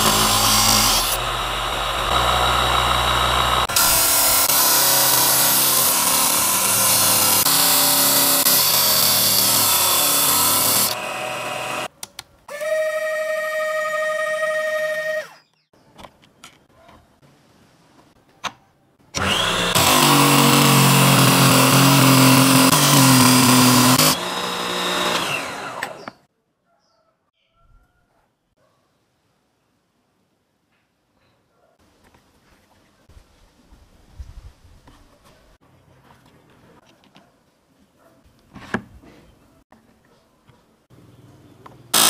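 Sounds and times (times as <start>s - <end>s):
disc sander grinding wood: 0.0s - 11.9s, 19.2s - 26.2s
sander motor whining: 0.0s - 11.9s, 12.5s - 15.4s, 19.2s - 26.2s.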